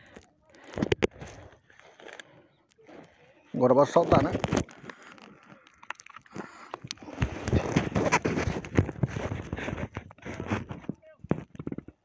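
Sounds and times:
knocks and clicks on a kayak: 6.7s - 12.0s.

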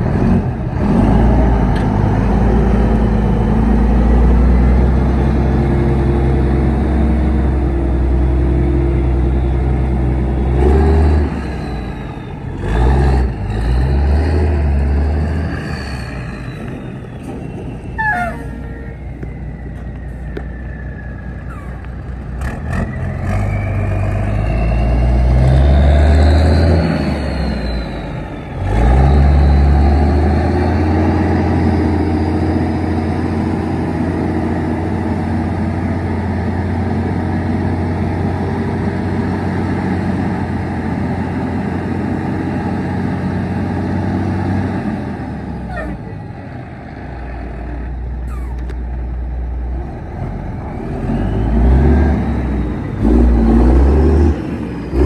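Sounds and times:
truck diesel engine under load: 0.0s - 55.0s.

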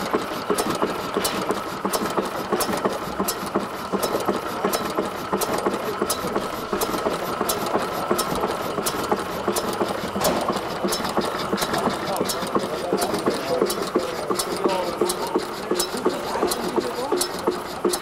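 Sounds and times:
stationary gas engine clattering: 0.0s - 18.0s.

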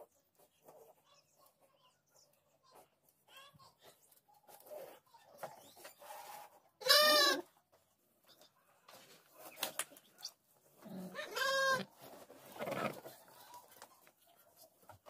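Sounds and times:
sheep bleating: 11.1s - 11.9s.

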